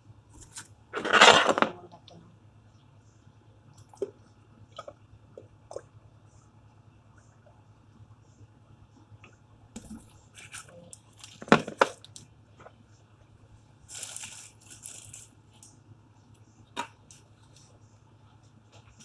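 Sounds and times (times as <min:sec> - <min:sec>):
plastic crinkle: 0:10.3 - 0:12.3, 0:13.8 - 0:15.6.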